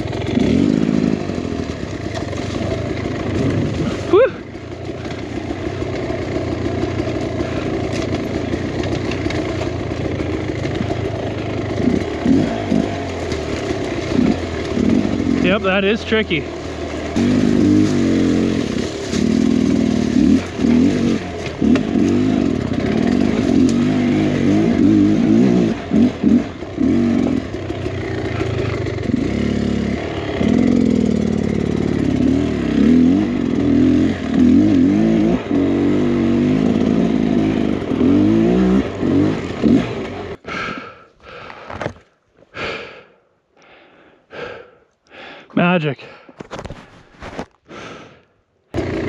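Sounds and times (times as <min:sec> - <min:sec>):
dirt bike engine revving: 0:00.0 - 0:41.5, 0:48.7 - 0:49.0
clatter and scraping: 0:01.8 - 0:04.1, 0:06.8 - 0:15.3, 0:16.5 - 0:23.9, 0:46.4 - 0:47.6
hard breathing: 0:40.4 - 0:48.4.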